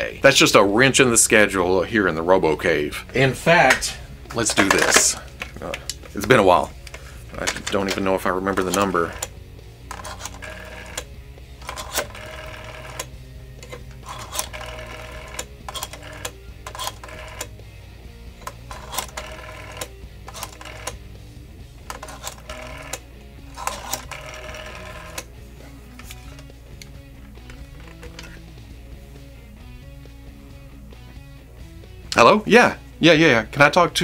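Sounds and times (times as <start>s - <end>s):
music playing: 0.0s - 34.0s
rotary telephone dial clicking: 8.6s - 17.5s, 18.4s - 21.0s, 21.9s - 25.3s, 26.0s - 28.4s.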